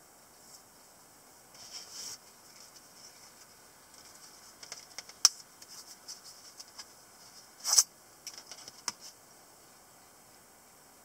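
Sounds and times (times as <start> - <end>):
scraping rustle: 1.5 - 9.2.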